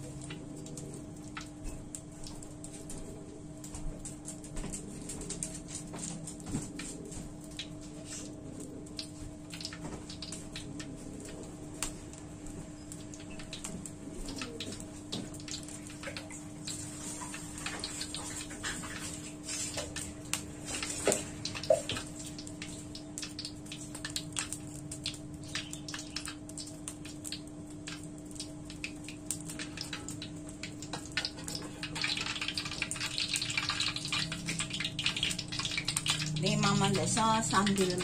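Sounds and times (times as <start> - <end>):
oil crackling and popping: 0.0 - 38.0
oil sizzling hiss: 9.0 - 38.0.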